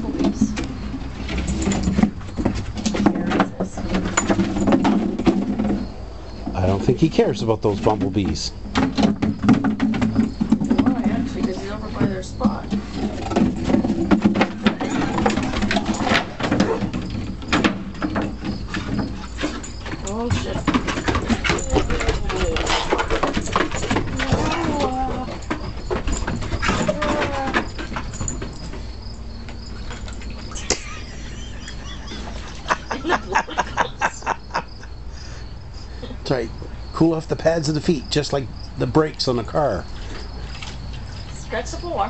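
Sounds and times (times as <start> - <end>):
dog claws scrabbling on wooden deck: 7.9 - 30.7.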